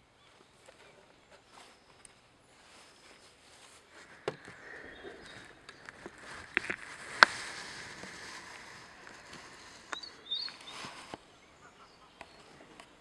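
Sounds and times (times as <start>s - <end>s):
outdoor garden ambience: 0.0s - 13.0s
faint high bird chirps: 9.1s - 12.8s.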